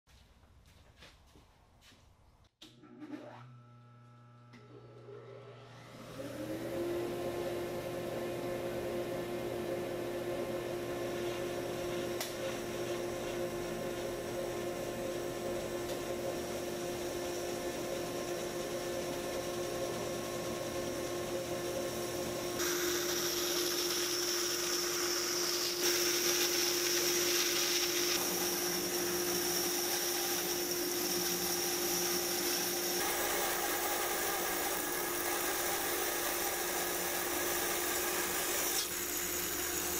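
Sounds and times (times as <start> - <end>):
bandsaw humming: 5.2 - 39.9
saw blade cutting wood: 22.6 - 39.9.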